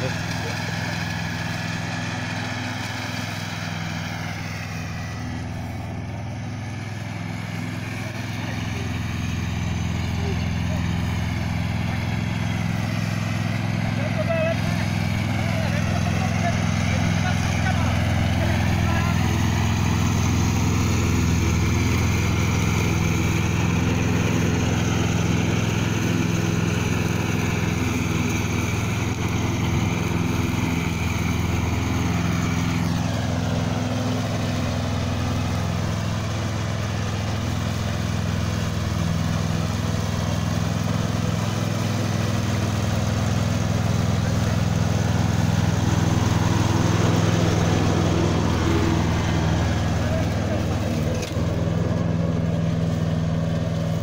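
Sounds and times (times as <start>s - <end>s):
lawn tractor engine running: 0.0s - 54.0s.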